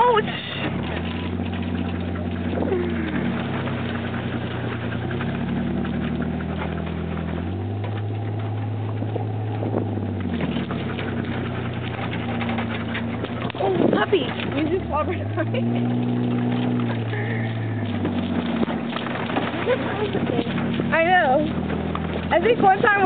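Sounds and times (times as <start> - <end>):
vehicle engine running: 0.0 - 23.0.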